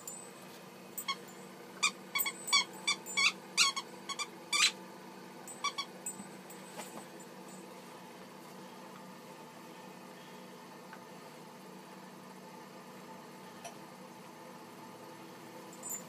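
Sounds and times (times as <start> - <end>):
puppy squeaking: 1.8 - 4.8, 5.6 - 5.9.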